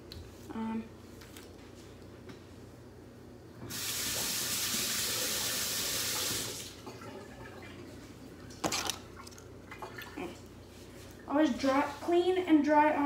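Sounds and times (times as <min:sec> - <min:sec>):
kitchen tap running: 0:03.6 - 0:07.9.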